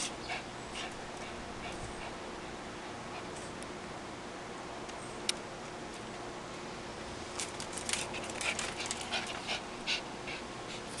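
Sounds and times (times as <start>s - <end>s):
dogs breathing and scuffling: 0.0s - 2.3s, 7.3s - 11.0s.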